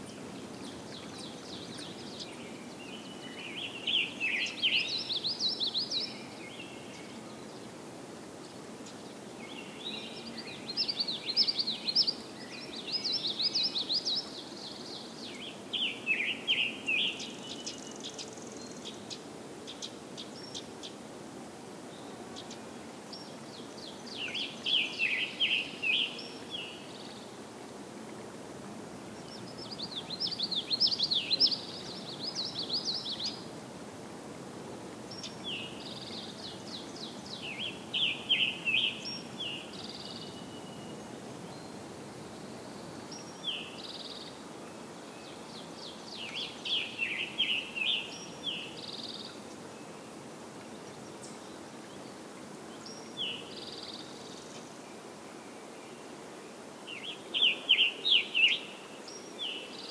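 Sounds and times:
low background noise: 0.0s - 59.9s
birds singing: 22.0s - 27.3s, 45.2s - 50.1s, 56.9s - 59.9s.

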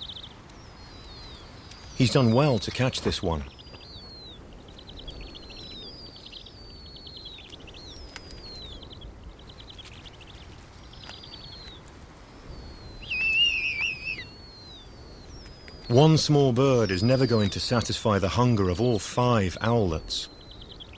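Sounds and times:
bird wavering squeal: 12.5s - 17.6s.

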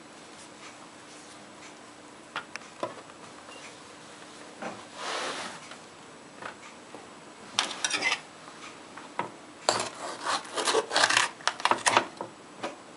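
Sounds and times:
knife cutting pepper crunching: 9.7s - 12.0s.

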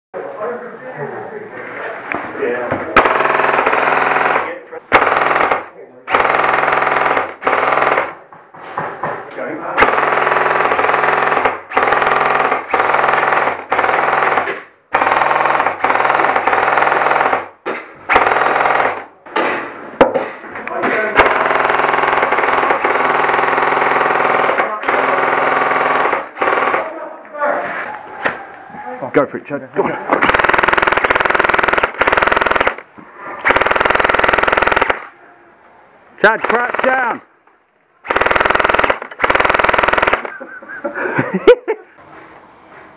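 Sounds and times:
airsoft rifle full-auto bursts: 3.0s - 8.2s, 9.8s - 19.1s, 21.2s - 27.0s, 30.2s - 35.2s, 36.2s - 37.3s, 38.0s - 40.4s.

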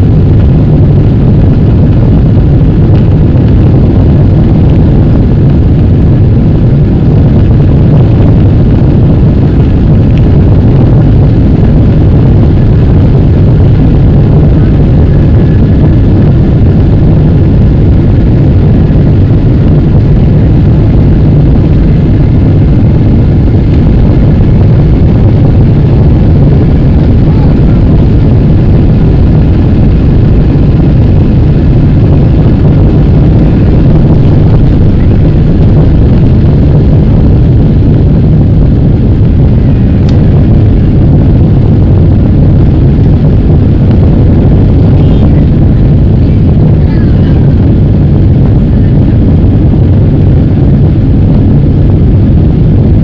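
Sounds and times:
jet engines roaring: 0.0s - 52.6s.

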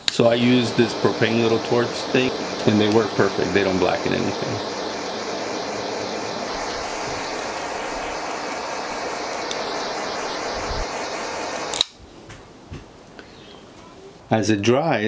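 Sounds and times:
propane torch hissing: 0.0s - 11.9s
torch shut-off click: 0.0s - 12.0s.

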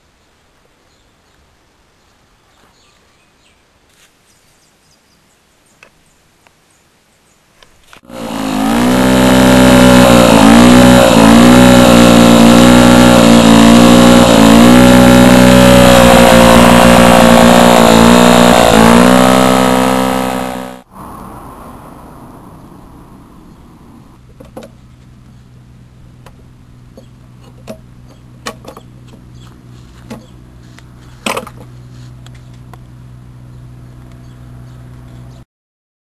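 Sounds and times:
lawn mower engine running: 8.0s - 20.8s, 24.3s - 35.2s.

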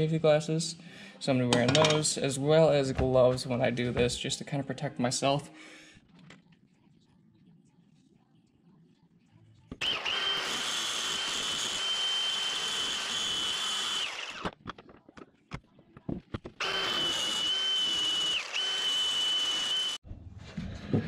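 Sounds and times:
electric grinder whining: 9.8s - 14.6s, 16.6s - 20.0s.

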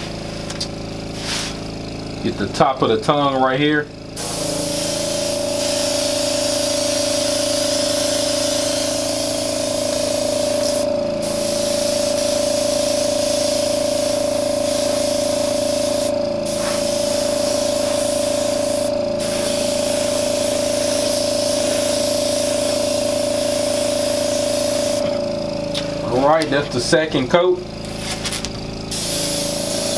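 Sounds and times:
steady hum: 0.0s - 29.9s
airbrush spraying hiss: 1.1s - 1.7s, 4.2s - 25.1s, 28.9s - 29.9s.

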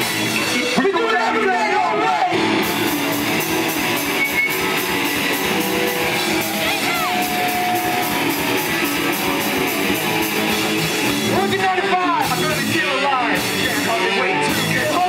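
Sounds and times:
bass guitar: 0.0s - 15.0s
distorted electric guitars: 0.0s - 15.0s
drum kit fast beat: 0.0s - 15.0s
high note sliding down: 3.7s - 9.9s.

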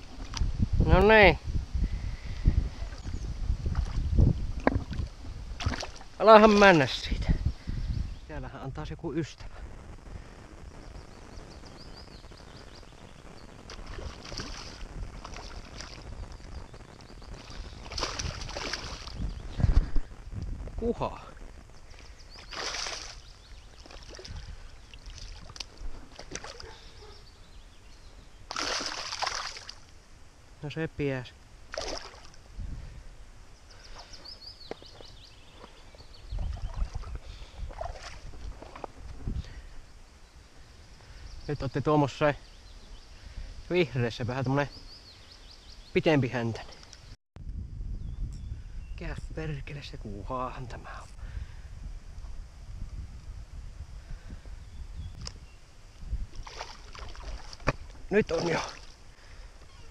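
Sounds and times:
low rumble of wind on microphone: 0.0s - 59.9s
small songbird singing: 2.3s - 3.4s, 6.2s - 8.6s, 10.8s - 14.8s, 16.0s - 19.8s, 21.7s - 25.2s, 33.5s - 37.6s, 41.1s - 47.1s, 47.9s - 49.3s, 54.6s - 55.6s
fish splashing at the surface: 13.7s - 16.0s, 17.8s - 19.2s, 22.4s - 23.2s, 28.5s - 29.8s, 31.7s - 32.4s, 56.3s - 58.9s.

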